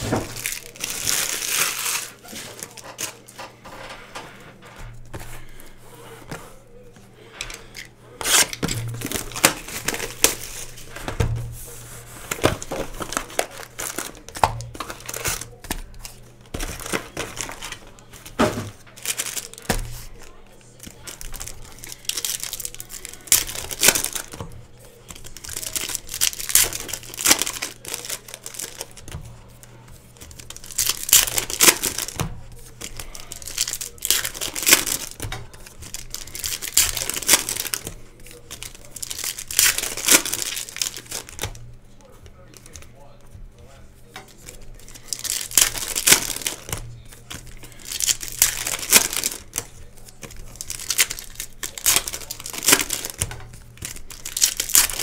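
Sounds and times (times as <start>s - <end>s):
plastic wrappers crinkling and tearing: 0.0s - 41.8s, 42.4s - 43.4s, 44.0s - 55.0s.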